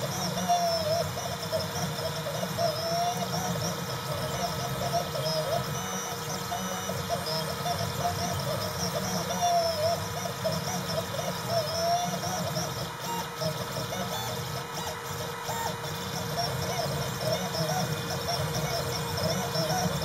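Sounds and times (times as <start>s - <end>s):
steady hum: 0.0s - 20.0s
stepper motors whining: 0.0s - 20.0s.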